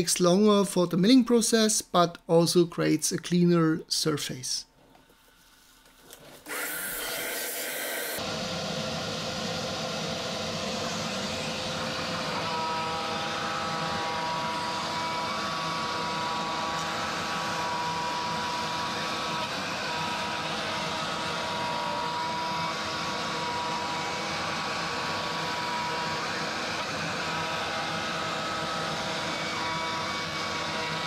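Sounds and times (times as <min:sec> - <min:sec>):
vacuum nozzle hiss: 0:06.5 - 0:08.3
machine whines changing pitch: 0:06.5 - 0:31.0
router bit cutting wood: 0:06.5 - 0:31.0.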